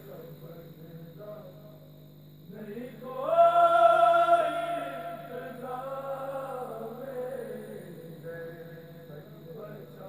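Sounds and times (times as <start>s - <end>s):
men chanting in unison: 2.5s - 10.0s.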